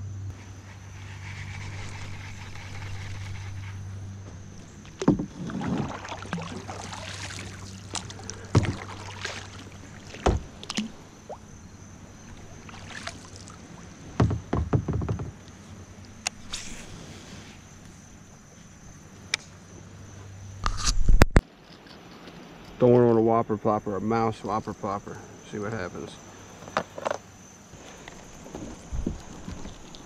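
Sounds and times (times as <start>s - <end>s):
paddle splashing through water: 4.8s - 11.4s, 12.2s - 14.5s
sharp knocks: 14.2s - 15.4s.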